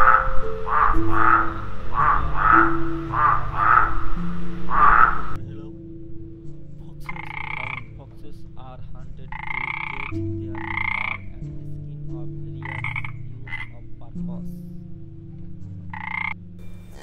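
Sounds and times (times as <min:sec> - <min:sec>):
frogs croaking: 0:00.0 - 0:17.0
steady low hum: 0:00.0 - 0:17.0.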